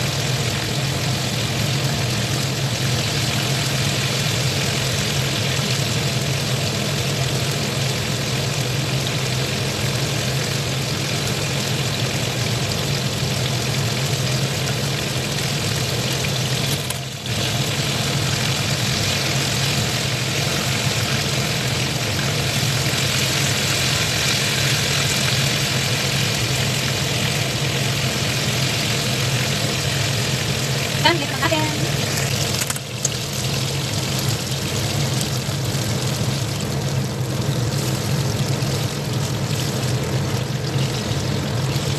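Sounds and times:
fish deep-frying in oil: 0.0 - 41.9.

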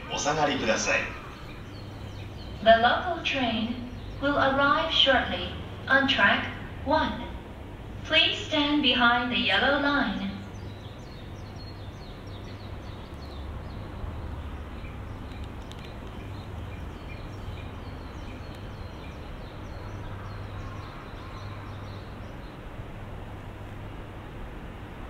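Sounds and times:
small birds chirping: 0.0 - 5.4, 9.8 - 22.8
low hum of city background: 0.0 - 25.0.

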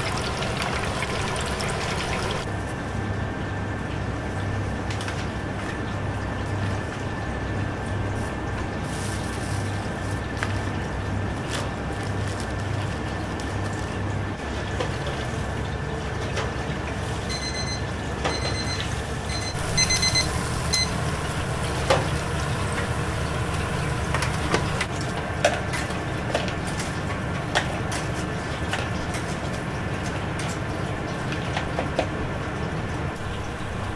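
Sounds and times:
kitchen hum: 0.0 - 2.6, 7.4 - 33.9
electronic timer beeping: 17.3 - 21.0.

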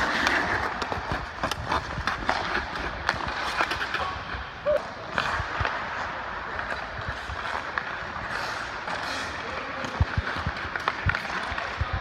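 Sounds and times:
hockey stick and puck clicks: 0.0 - 12.0
skate blades scraping ice: 0.0 - 12.0.

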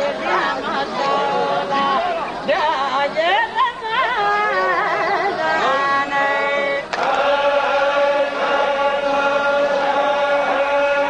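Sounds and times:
voices chanting in unison: 4.5 - 11.0.

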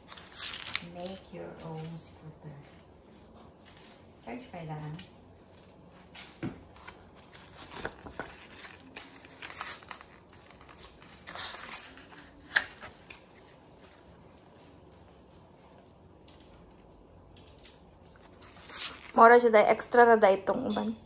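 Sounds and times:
packaging crinkling and rustling: 0.0 - 4.2, 4.8 - 14.9, 18.1 - 19.2.

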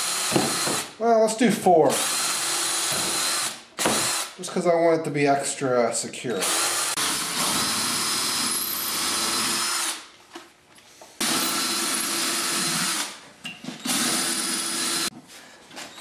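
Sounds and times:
cordless drill boring into plywood: 0.0 - 0.9, 2.0 - 4.4, 6.4 - 10.0, 11.2 - 13.2, 13.8 - 15.1.

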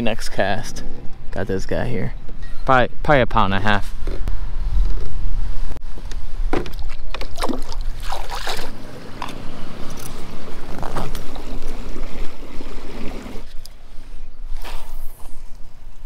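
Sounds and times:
wind rumble on microphone: 3.3 - 16.0
water splashing: 6.7 - 13.5.

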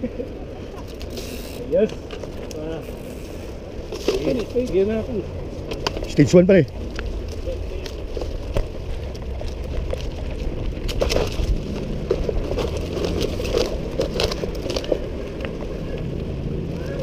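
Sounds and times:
bike clicks and rattles: 0.0 - 17.0
bike tyres crunching through leaves: 0.1 - 17.0
low rumble: 4.9 - 17.0.

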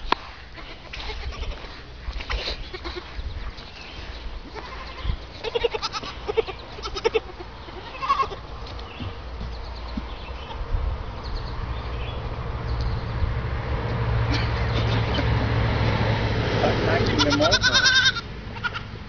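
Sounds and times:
goats bleating: 0.6 - 1.7, 2.5 - 3.2, 4.5 - 8.4, 17.0 - 18.9.

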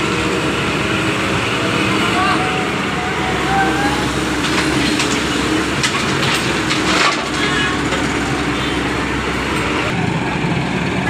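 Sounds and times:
excavator diesel engine running: 0.0 - 11.0
stone and earth clattering: 4.4 - 8.4.

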